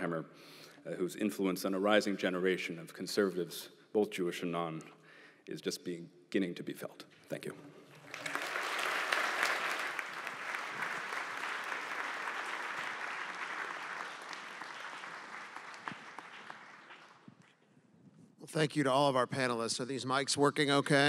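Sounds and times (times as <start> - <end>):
audience applauding: 7.9 - 17.4.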